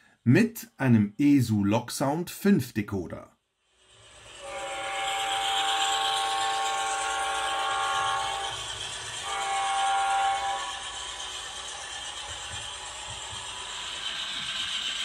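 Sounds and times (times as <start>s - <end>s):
model locomotive air horn: 4.1s - 12.1s
hiss and rumble: 7.5s - 15.0s.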